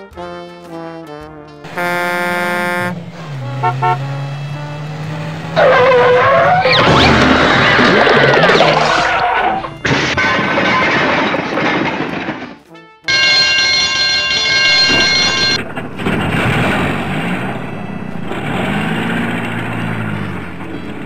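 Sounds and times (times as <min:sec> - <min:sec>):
background music: 0:00.0 - 0:06.2, 0:12.6 - 0:14.8
truck engine running: 0:01.7 - 0:08.4, 0:13.1 - 0:21.0
cartoon clatter: 0:06.4 - 0:12.6
steady held tone: 0:13.1 - 0:15.9.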